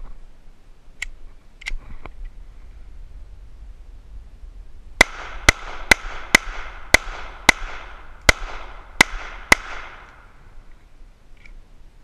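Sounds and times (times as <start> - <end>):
pistol shots with echo: 5.0 - 10.3.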